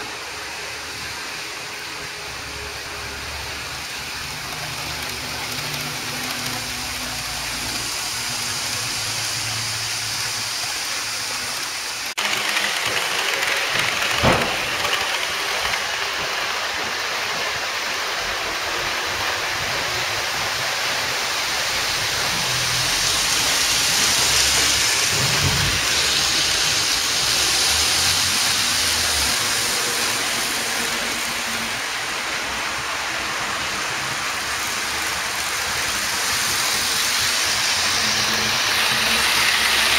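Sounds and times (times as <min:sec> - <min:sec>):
model trains rolling hiss: 0:00.0 - 0:39.9.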